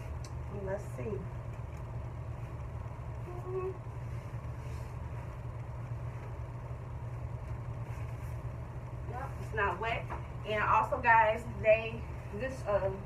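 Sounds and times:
low background hum: 0:00.0 - 0:13.0.

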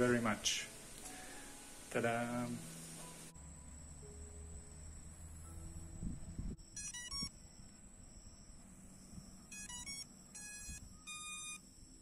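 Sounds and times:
electronic beeping start-up chime: 0:06.5 - 0:11.6.

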